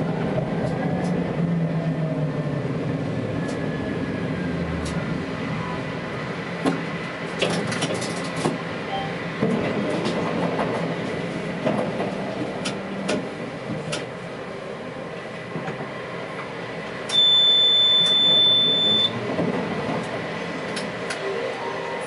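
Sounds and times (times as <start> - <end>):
tram running along track: 0.0 - 22.0
high-pitched tone: 21.2 - 22.0.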